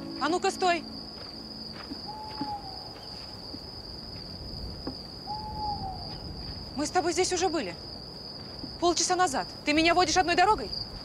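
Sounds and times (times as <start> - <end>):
crickets chirring: 0.0 - 11.0
owl hooting: 2.1 - 3.2, 5.3 - 6.2.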